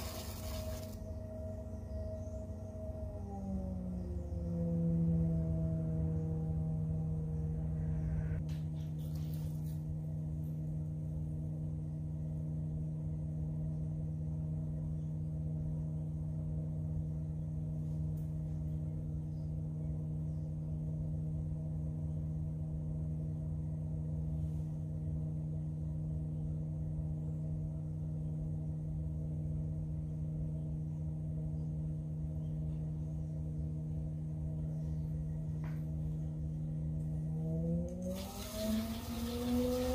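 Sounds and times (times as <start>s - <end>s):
pottery wheel motor humming: 0.0s - 8.4s, 33.0s - 39.9s.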